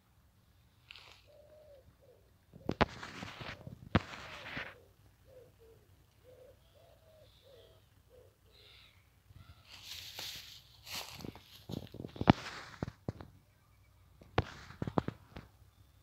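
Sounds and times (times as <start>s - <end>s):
pigeon cooing: 0.9s - 9.7s.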